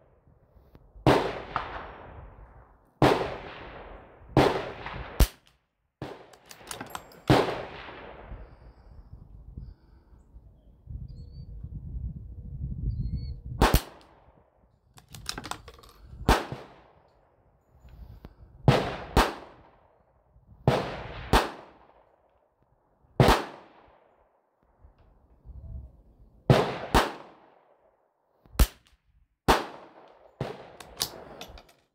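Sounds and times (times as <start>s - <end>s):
rifle shots with echo: 1.0s - 2.4s, 3.0s - 8.7s, 13.6s - 14.4s, 16.2s - 17.1s, 18.7s - 20.0s, 20.7s - 22.3s, 23.2s - 24.2s, 26.5s - 27.9s, 29.5s - 31.6s.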